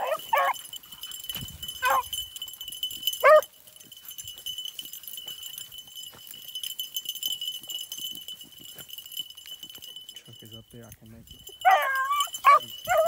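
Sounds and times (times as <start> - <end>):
dog baying: 0.0 - 0.7, 1.8 - 2.2, 3.1 - 3.6, 11.6 - 13.0
dry brush rustling and crackling: 0.0 - 13.0.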